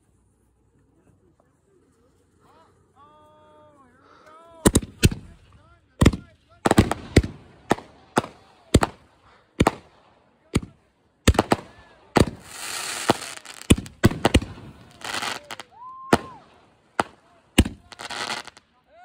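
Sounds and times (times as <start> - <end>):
fireworks bangs: 4.6 - 10.0, 10.6 - 18.6
fireworks crackling: 4.6 - 10.0, 10.6 - 18.8.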